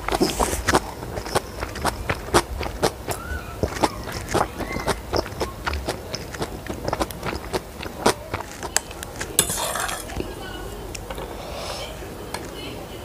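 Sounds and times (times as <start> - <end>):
close eating sounds: 0.0 - 13.0
utensil clinking on ceramic plates: 9.3 - 10.4.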